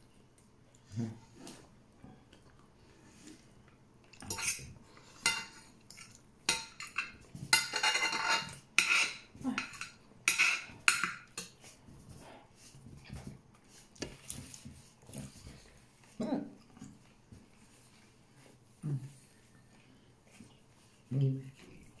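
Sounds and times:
cutlery clinking on ceramic plate: 4.3s - 11.6s.

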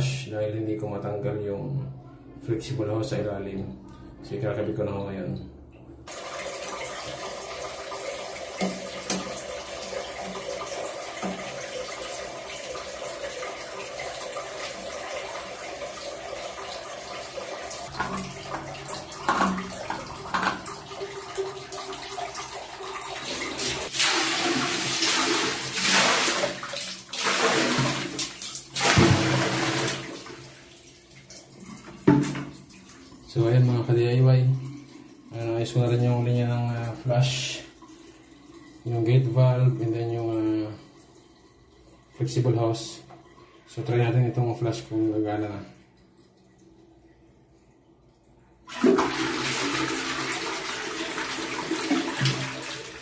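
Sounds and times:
water running into toilet cistern: 6.0s - 53.0s
water poured in gushes: 6.1s - 30.5s, 48.7s - 53.0s.

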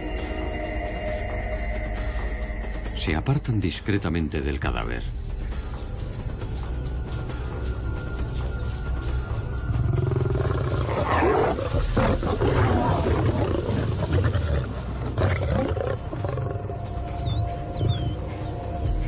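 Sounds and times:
lion snarling and growling: 9.7s - 18.2s.

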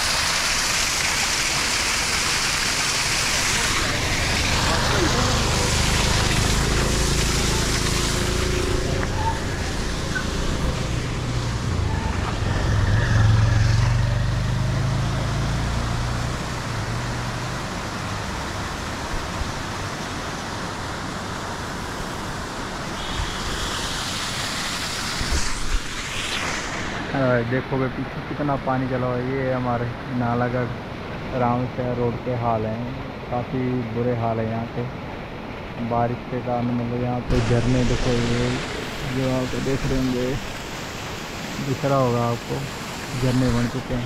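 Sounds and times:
water rushing over rocks: 0.0s - 44.0s
vehicle engine passing: 3.6s - 18.7s.

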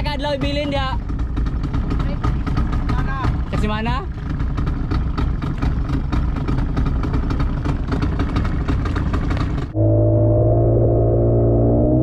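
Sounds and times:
boat engine idling: 0.0s - 10.2s
steady drone: 9.7s - 12.0s.

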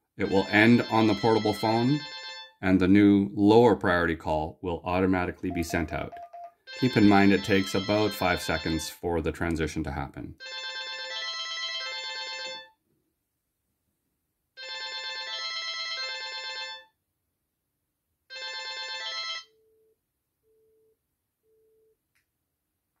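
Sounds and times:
phone melodic ringtone: 0.2s - 2.6s, 5.4s - 8.9s, 10.4s - 12.7s
short low beeps: 5.5s - 6.6s.

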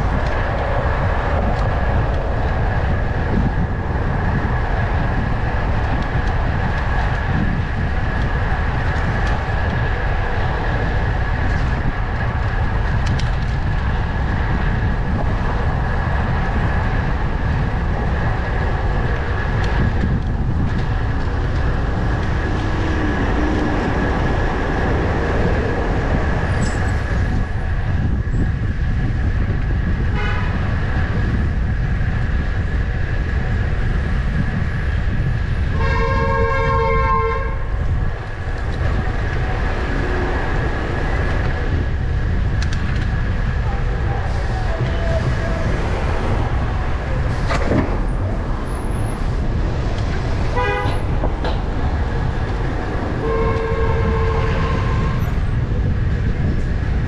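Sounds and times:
wind rushing over microphone: 0.0s - 57.0s
vehicle horn: 30.1s - 30.6s, 35.7s - 37.7s, 50.6s - 51.1s, 53.2s - 55.2s.

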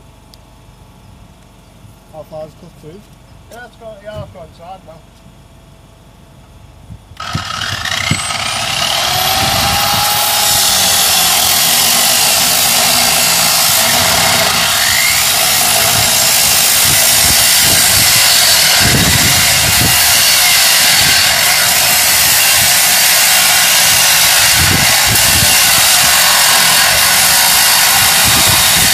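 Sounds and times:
angle grinder cutting metal: 7.2s - 28.9s.

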